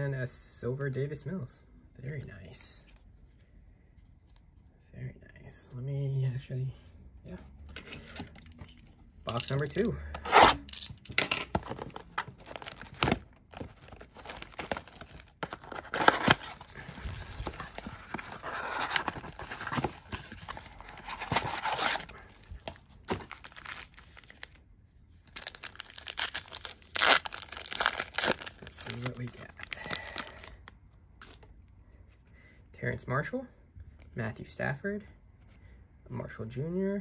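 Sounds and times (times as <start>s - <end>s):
plastic wrapping crinkling and tearing: 9.3s - 24.6s, 25.2s - 31.4s.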